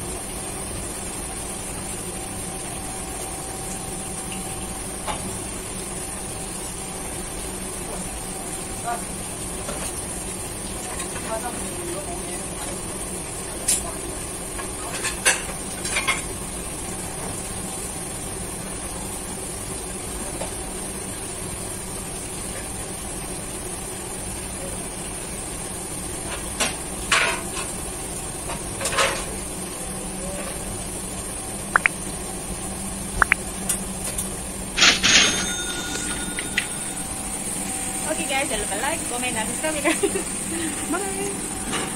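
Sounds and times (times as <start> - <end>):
dishes and utensils clinking: 34.8 - 37.1.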